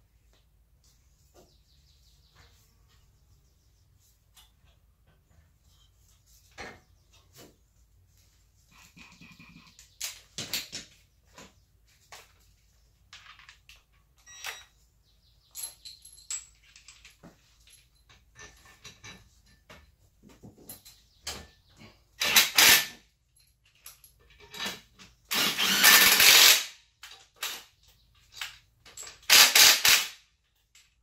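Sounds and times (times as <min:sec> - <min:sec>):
hand tools clinking on metal: 0:15.4 - 0:19.9.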